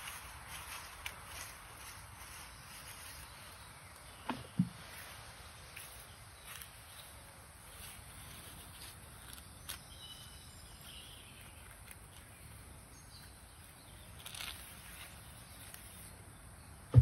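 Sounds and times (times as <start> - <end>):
faint outdoor background noise: 0.0 - 17.0
faint high chirp: 9.2 - 16.1.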